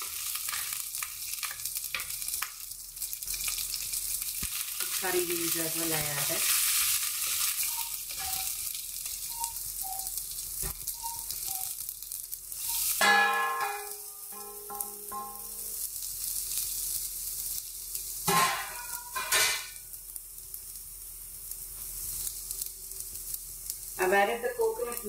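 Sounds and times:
seeds sizzling in oil: 0:00.0 - 0:25.0
metal bowl knocking on pan: 0:13.0 - 0:15.6, 0:18.3 - 0:19.7.

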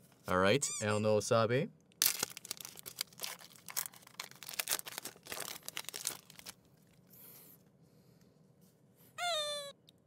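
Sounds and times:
foil wrapper crinkling and tearing: 0:02.0 - 0:06.6.

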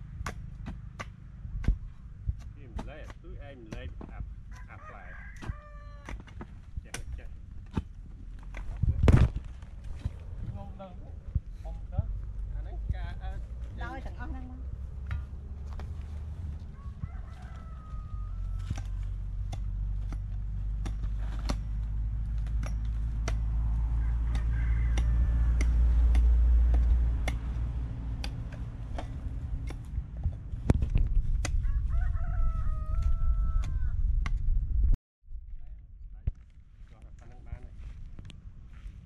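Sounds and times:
rooster crowing: 0:04.5 - 0:06.3, 0:16.4 - 0:19.3, 0:23.6 - 0:26.4, 0:31.6 - 0:34.1
steady low rumble: 0:06.5 - 0:17.0, 0:18.0 - 0:39.0
hoe chopping into soil: 0:18.5 - 0:23.6.

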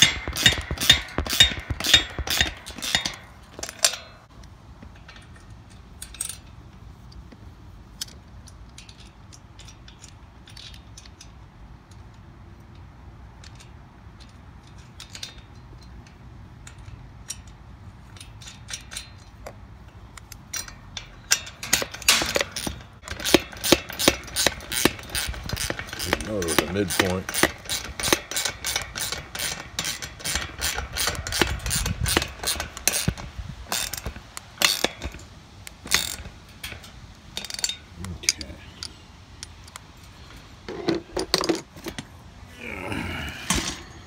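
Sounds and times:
socket wrench clicking: 0:00.0 - 0:07.3, 0:08.0 - 0:39.9.

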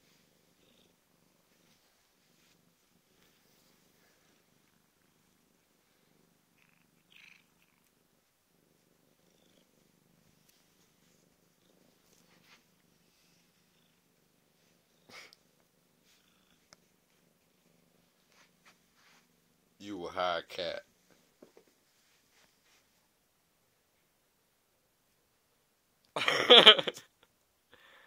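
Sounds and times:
cat purring: 0:00.0 - 0:19.8.

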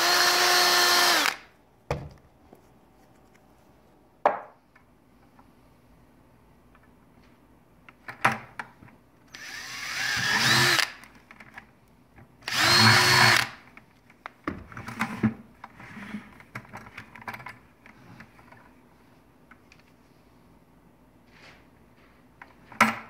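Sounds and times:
cordless drill boring plastic: 0:00.0 - 0:01.4, 0:09.3 - 0:11.0, 0:12.4 - 0:13.6.

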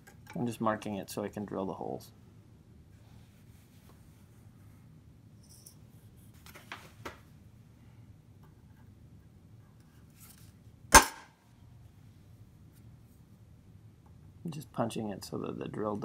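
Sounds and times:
center punch striking steel: 0:10.9 - 0:11.4.

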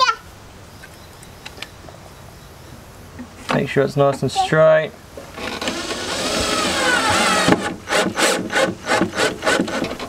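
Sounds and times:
cordless drill driving screw: 0:05.4 - 0:10.0.

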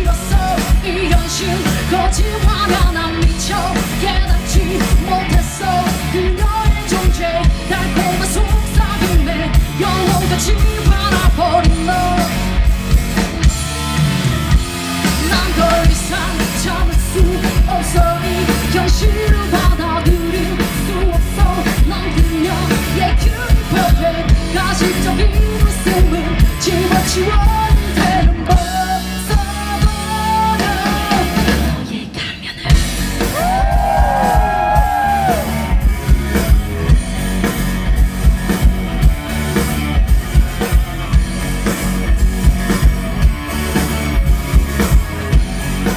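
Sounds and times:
woman singing lead: 0:00.0 - 0:12.6, 0:15.0 - 0:36.5
bass guitar: 0:00.0 - 0:45.9
drum kit: 0:00.0 - 0:45.9
electric guitar: 0:00.0 - 0:45.9.

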